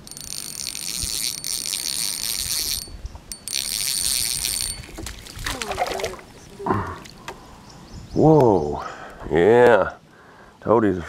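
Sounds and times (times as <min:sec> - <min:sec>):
fishing reel whirring and clicking: 0:00.0 - 0:06.2.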